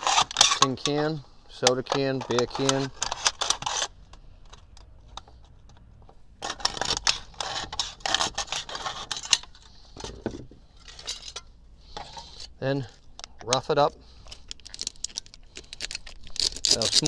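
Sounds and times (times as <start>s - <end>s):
can crinkling as handled: 14.3s - 17.0s.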